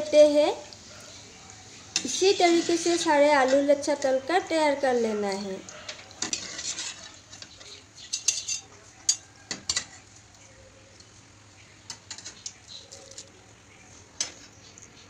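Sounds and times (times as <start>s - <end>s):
metal utensils clinking on pan: 5.9s - 10.0s.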